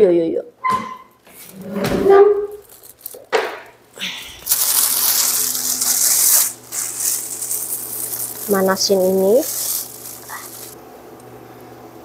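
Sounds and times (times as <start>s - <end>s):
steady low hum: 3.8s - 12.0s
food sizzling in frying pan: 4.4s - 10.8s.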